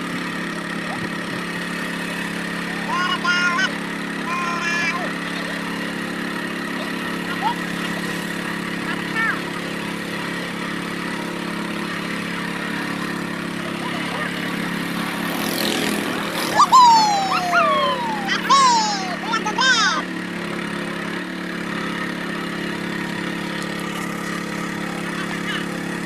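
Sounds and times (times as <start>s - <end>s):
boat engine humming: 0.0s - 26.0s
loud high falling calls: 16.4s - 20.0s.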